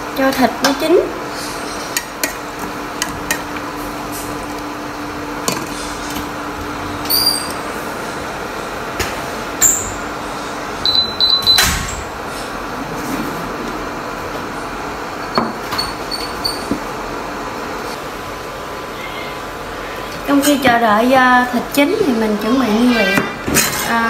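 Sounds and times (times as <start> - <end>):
cooktop fan hum: 0.0 - 24.0
high beeps: 10.8 - 11.8.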